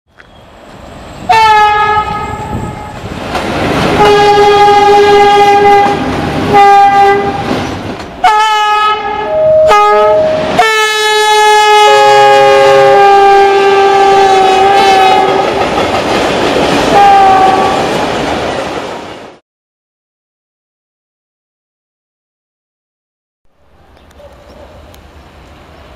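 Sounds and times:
locomotive horn blasts: 1.3s - 2.9s, 4.0s - 7.5s, 8.2s - 15.6s, 16.9s - 17.9s
train wheels clattering on rails: 2.4s - 6.6s, 7.3s - 8.2s, 14.6s - 19.2s.

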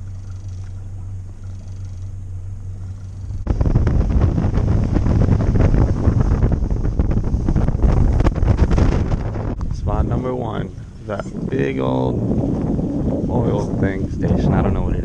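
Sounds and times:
outboard motor idling: 0.0s - 14.1s
rush of wind and water: 3.3s - 15.0s.

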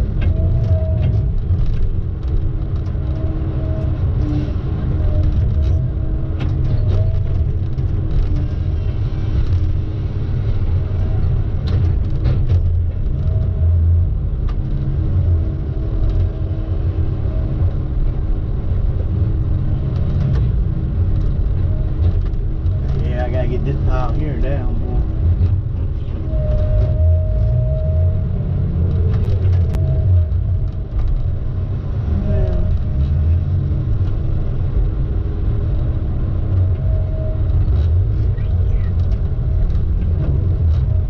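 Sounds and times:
vehicle engine and road rumble: 0.0s - 41.0s.

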